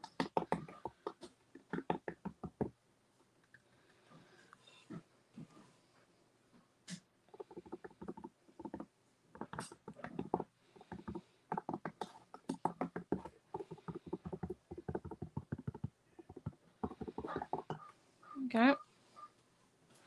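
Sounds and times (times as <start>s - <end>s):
hands rubbing paint on canvas: 7.4s - 17.8s.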